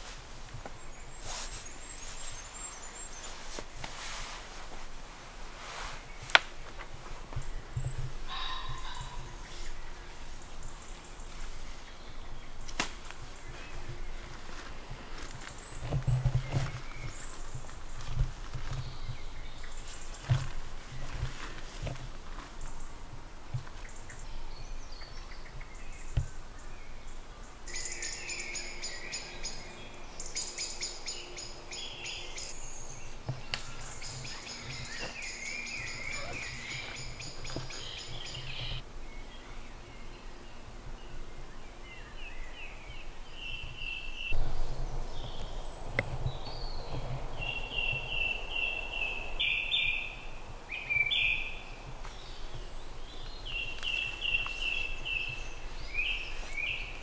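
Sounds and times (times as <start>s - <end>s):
songbird trilling: 27.7s - 38.8s, 43.4s - 57.0s
low background rumble: 28.5s - 57.0s
bird repeating clear notes: 33.6s - 38.8s.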